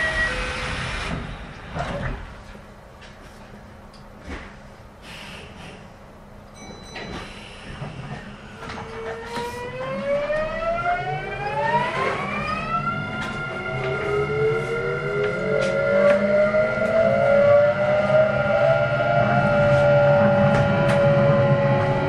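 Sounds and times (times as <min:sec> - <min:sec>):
low train running rumble: 0:00.0 - 0:22.0
train motors whining: 0:07.4 - 0:22.0.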